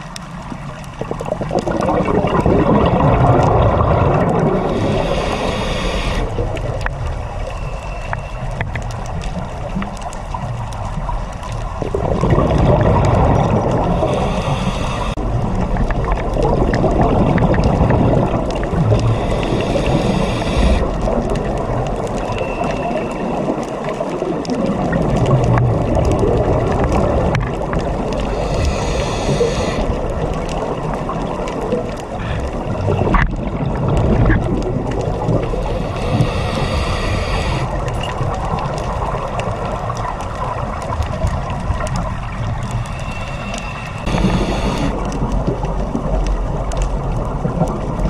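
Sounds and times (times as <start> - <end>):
exhaled bubbles gurgling: 0.0 - 48.0
regulator inhalation hiss: 4.6 - 6.4, 14.0 - 15.2, 19.0 - 20.9, 28.3 - 29.9, 35.6 - 37.8, 42.8 - 45.0.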